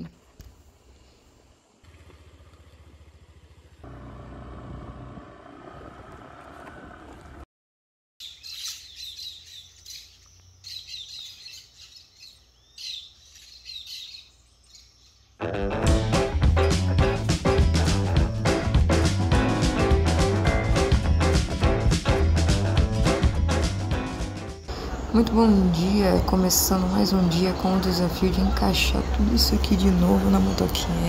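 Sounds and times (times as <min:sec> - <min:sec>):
scooter engine running: 0:01.8 - 0:07.4
birds chirping: 0:08.2 - 0:31.0.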